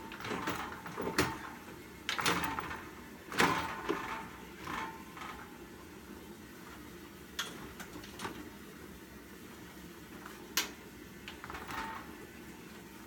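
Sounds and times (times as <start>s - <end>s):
metal frame knocking and scraping: 0.1s - 5.5s.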